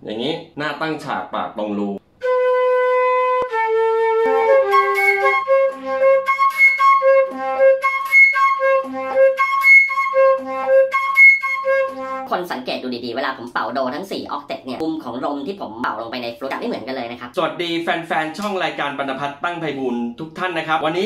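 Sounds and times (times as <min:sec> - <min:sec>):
solo flute: 0:02.2 - 0:12.3.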